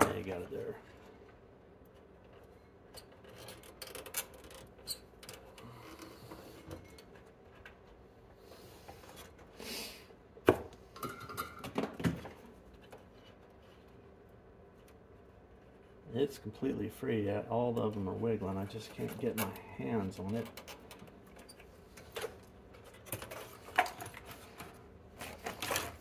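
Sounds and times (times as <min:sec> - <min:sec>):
hand tools clicking and scraping: 0:18.8 - 0:26.0.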